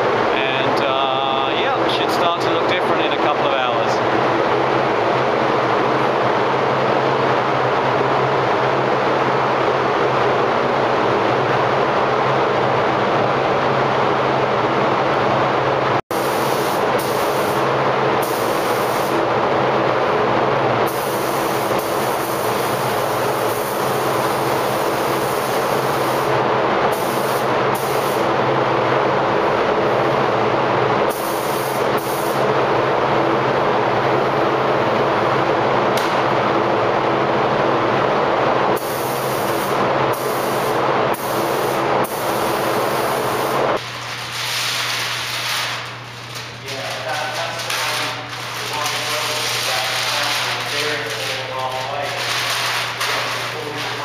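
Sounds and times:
air handling rushing hum: 0:00.0 - 0:54.0
paint spray gun hissing: 0:16.1 - 0:17.6, 0:18.2 - 0:19.2, 0:20.9 - 0:26.3, 0:26.9 - 0:28.3, 0:31.1 - 0:32.4, 0:38.8 - 0:45.9.

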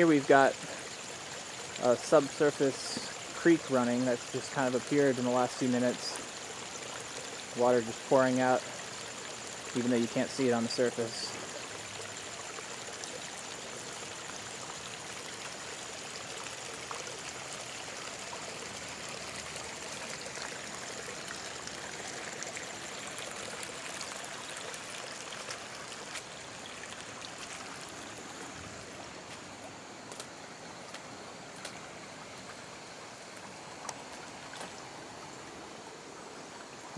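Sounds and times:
rush of flowing water: 0:00.0 - 0:36.9.

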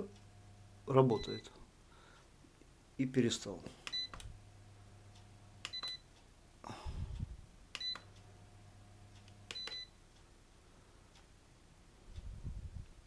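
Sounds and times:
fan motor humming: 0:00.0 - 0:02.3, 0:03.7 - 0:11.3
fan control buttons clicking: 0:05.6 - 0:06.0, 0:07.7 - 0:08.2, 0:09.2 - 0:09.9.

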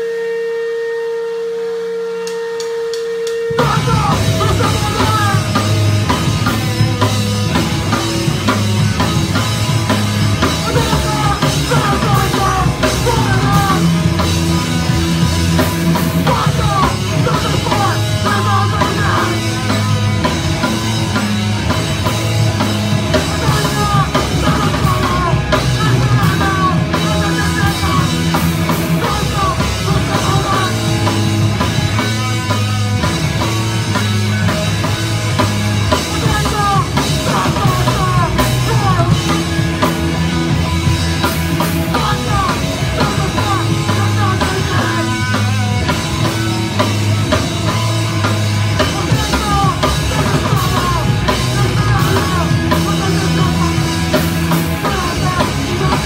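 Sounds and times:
single held tone: 0:00.0 - 0:03.6
rock band playing live: 0:02.8 - 0:56.0.

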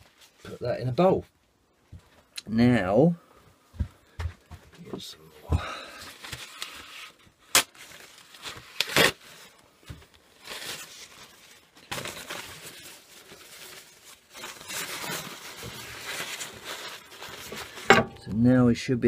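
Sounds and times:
paper towel tearing and rustling: 0:06.1 - 0:17.9.

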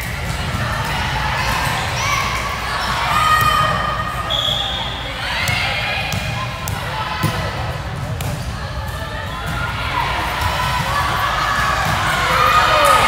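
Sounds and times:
sneaker squeaks: 0:01.4 - 0:07.4
ball bouncing on court floor: 0:05.4 - 0:08.5.

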